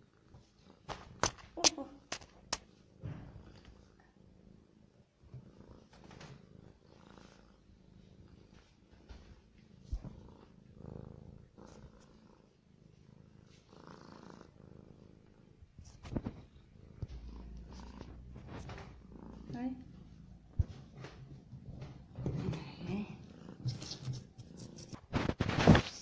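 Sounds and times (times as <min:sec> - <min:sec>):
cat purring: 0:00.0 - 0:26.0.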